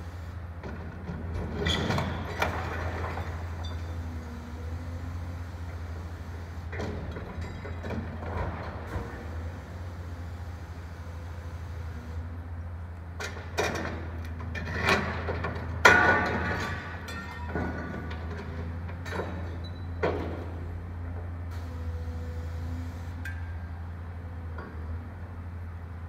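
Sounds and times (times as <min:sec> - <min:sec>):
metal clanks and crashes: 0:13.3 - 0:20.4.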